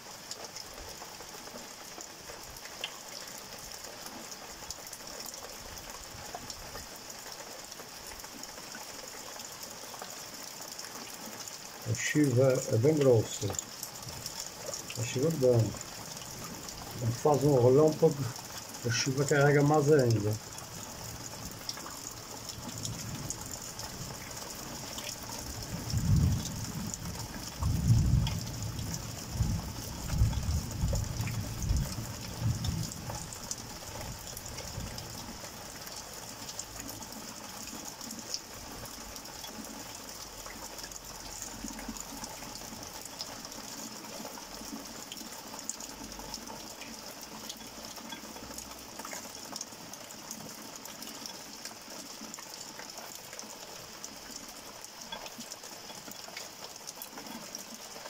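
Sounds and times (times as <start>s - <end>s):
heavy rain falling: 0.0s - 58.0s
thunder rumbling: 25.8s - 33.0s.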